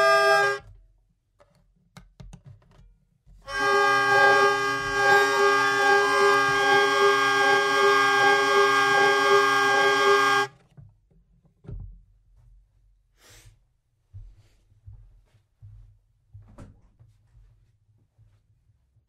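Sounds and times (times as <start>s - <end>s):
hurdy-gurdy droning chord: 0.0s - 0.6s, 3.5s - 10.5s.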